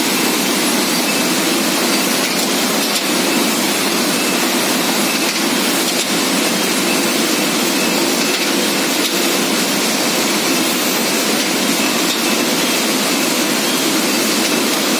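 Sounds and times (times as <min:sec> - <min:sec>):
steady machine noise: 0:00.0 - 0:14.9.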